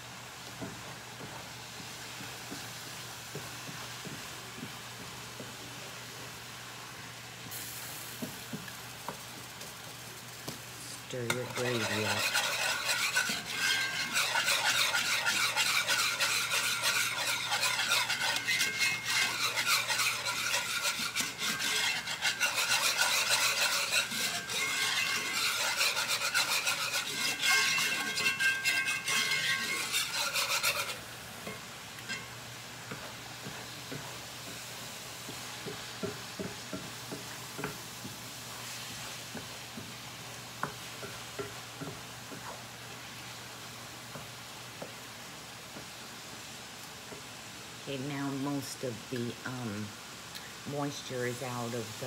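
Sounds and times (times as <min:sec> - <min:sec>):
sizzling with pops: 0:00.0 - 0:52.0
whisk scraping a skillet: 0:09.5 - 0:32.3, 0:40.6 - 0:42.6.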